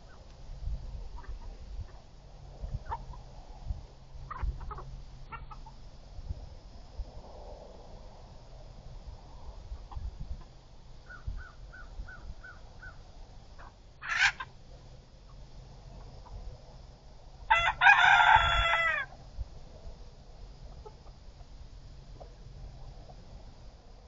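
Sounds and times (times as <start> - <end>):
chickens clucking: 1.1 - 3.4, 4.2 - 5.8, 20.6 - 21.5
chicken squawk: 4.3 - 5.8, 13.6 - 14.5, 17.5 - 19.1
rooster crowing: 17.5 - 19.2.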